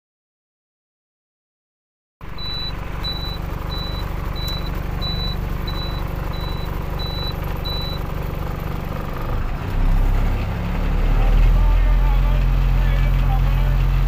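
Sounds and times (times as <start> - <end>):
diesel engine idling: 2.2 - 14.0
high-pitched warning beeps: 2.4 - 8.1.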